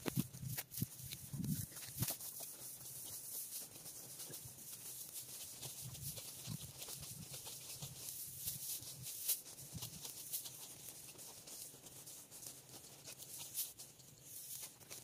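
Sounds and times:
sickle cutting dry wheat stalks: 0.0 - 15.0.

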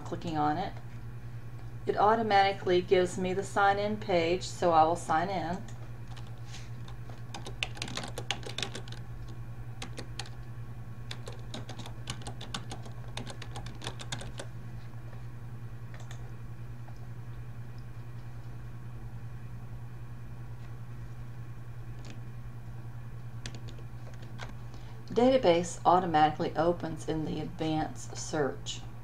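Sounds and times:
steady low hum: 0.0 - 29.0
keyboard typing: 6.1 - 10.4, 11.1 - 14.5, 15.9 - 16.2, 23.4 - 24.5.

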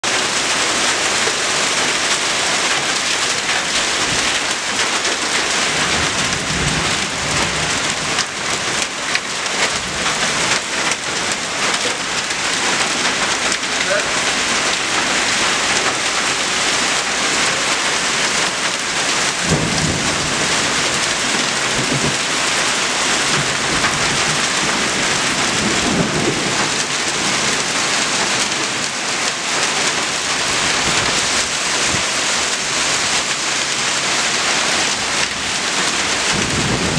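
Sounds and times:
hail and heavy rain pelting: 0.0 - 36.9
low thunder rumbles: 3.9 - 28.5, 34.9 - 36.9.

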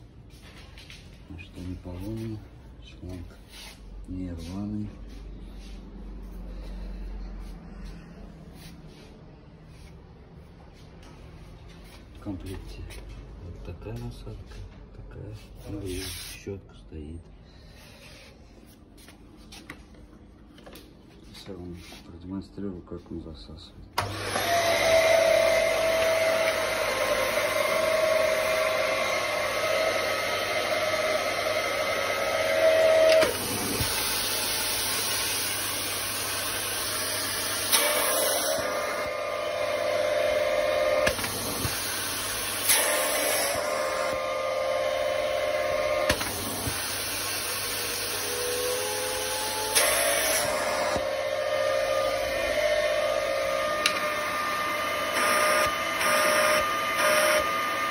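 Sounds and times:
vacuum cleaner whistling hum: 24.0 - 57.9.

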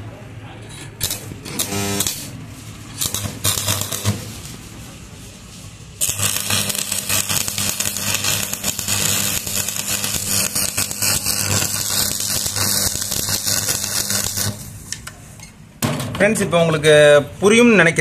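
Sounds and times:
welding arc crackling and sizzling: 1.0 - 5.0, 5.9 - 15.1.

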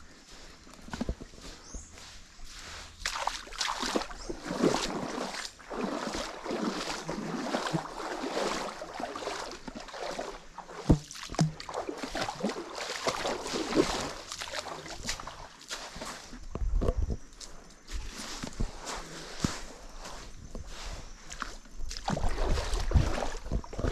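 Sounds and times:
feet wading through water: 0.0 - 23.9
dull thump: 10.8 - 11.6.

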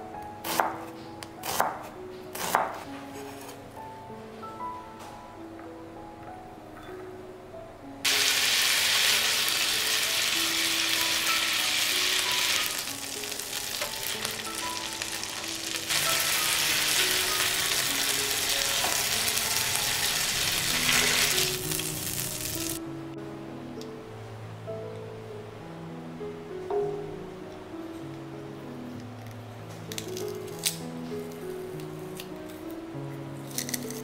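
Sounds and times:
soft background music: 0.0 - 34.0
chicken sizzling in hot oil: 8.1 - 22.8.

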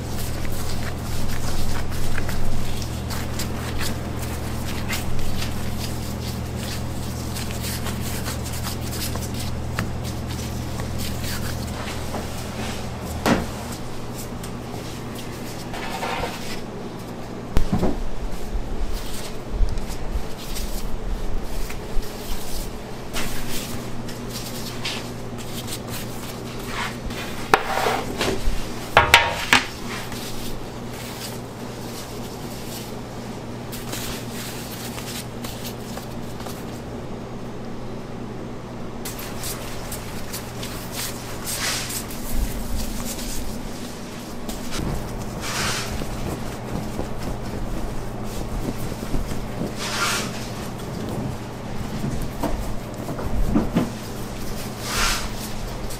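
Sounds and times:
low machine hum: 0.0 - 55.9.

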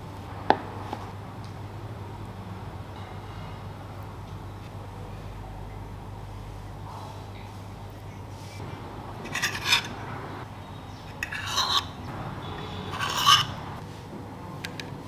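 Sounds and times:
dough scraping on metal tray: 9.2 - 10.0, 11.2 - 13.8.

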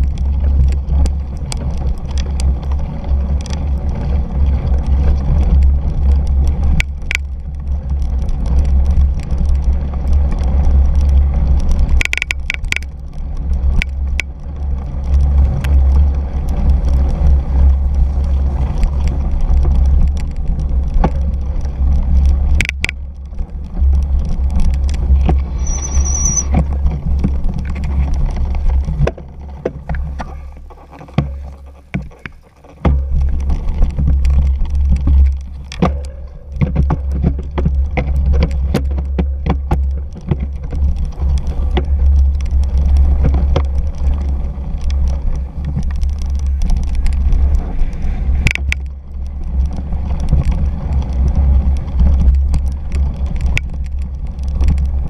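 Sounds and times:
bike clicking and rattling: 0.0 - 55.0
wind and vibration rumble: 0.0 - 55.0
short high squeal: 25.5 - 26.6.

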